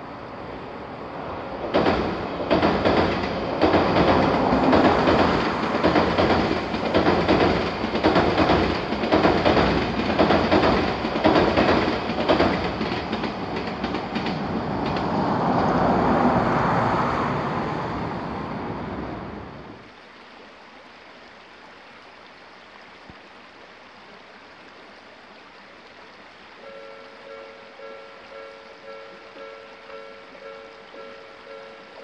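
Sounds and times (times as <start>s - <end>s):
electric train passing: 0.0s - 19.9s, 26.6s - 32.0s
wheels clicking over rail joints: 1.2s - 16.4s
faint steady hiss: 18.4s - 32.0s.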